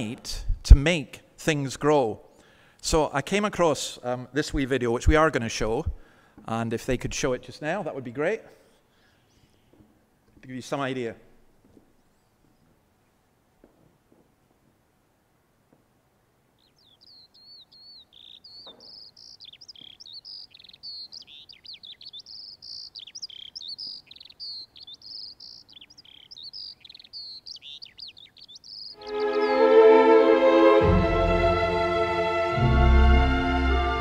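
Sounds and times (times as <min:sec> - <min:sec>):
songbird warbling song: 0:16.5 - 0:30.6
orchestral string music: 0:29.0 - 0:34.0.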